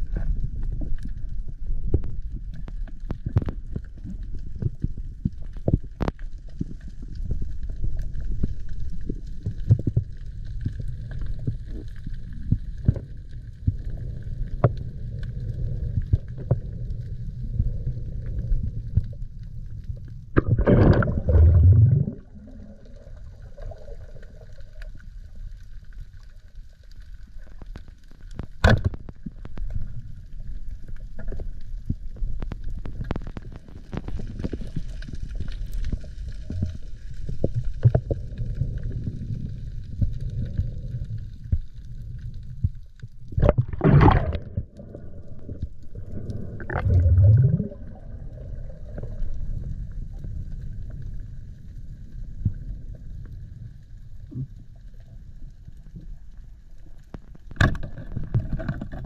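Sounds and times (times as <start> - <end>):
underwater rumble of moving water: 0.0 - 59.0
water rush: 20.4 - 23.8, 43.4 - 44.7, 46.1 - 48.2.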